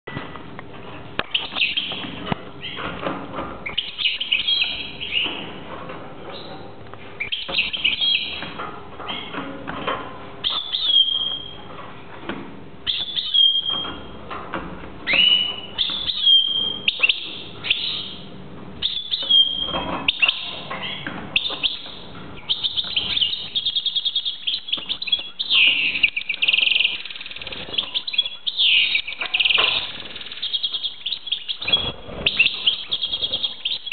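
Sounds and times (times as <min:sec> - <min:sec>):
goldfinch singing: 0:03.6 - 0:05.5, 0:07.2 - 0:08.5, 0:10.4 - 0:11.6, 0:12.8 - 0:14.1, 0:15.1 - 0:18.2, 0:18.8 - 0:33.9.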